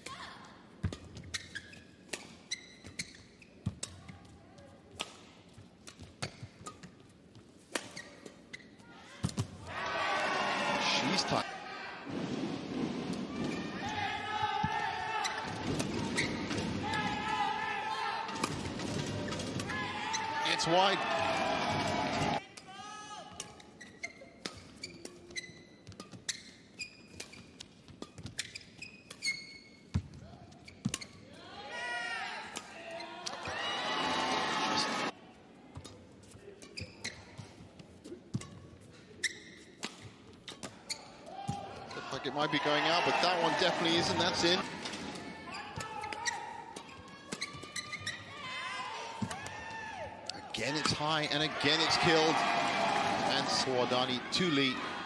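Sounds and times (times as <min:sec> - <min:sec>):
shoe squeaks: 0:01.2 - 0:03.7, 0:07.9 - 0:08.8, 0:15.2 - 0:16.5, 0:23.5 - 0:30.0, 0:36.6 - 0:37.6, 0:39.2 - 0:41.2, 0:45.5 - 0:48.3.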